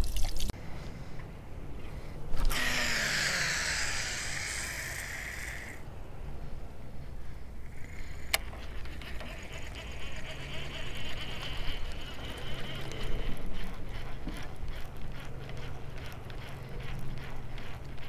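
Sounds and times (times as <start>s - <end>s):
fishing reel whirring: 2.4s - 5.8s, 7.6s - 18.0s
reel clicks: 2.4s - 5.8s, 7.7s - 18.0s.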